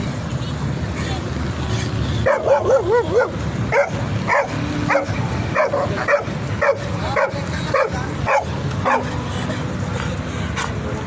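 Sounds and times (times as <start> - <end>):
dog barking: 2.2 - 9.1.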